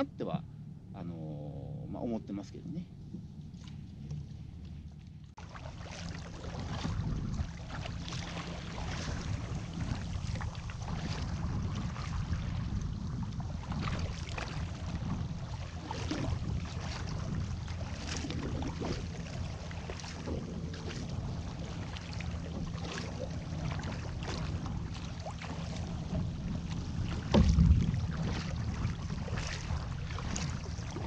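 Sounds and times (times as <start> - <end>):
water splashing and sloshing: 1.6 - 31.0
wind buffeting microphone: 6.2 - 31.0.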